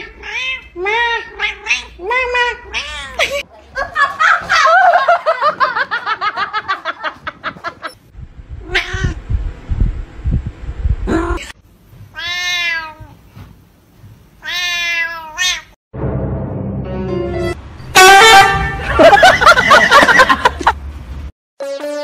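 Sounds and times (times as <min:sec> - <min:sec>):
cat meowing: 0:00.0 - 0:03.2, 0:08.6 - 0:09.2, 0:12.1 - 0:13.2, 0:14.4 - 0:15.8
loud music: 0:16.0 - 0:19.0.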